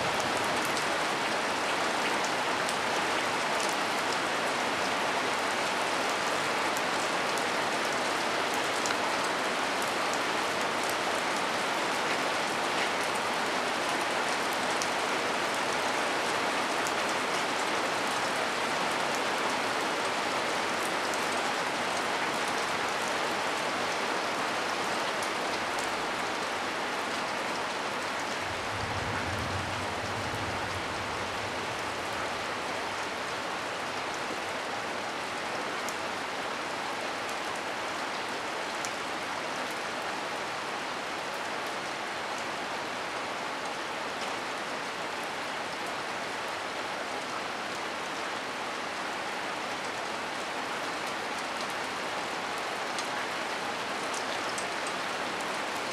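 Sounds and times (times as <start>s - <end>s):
heavy rain falling: 0.0s - 55.9s
low rumble: 28.4s - 32.6s.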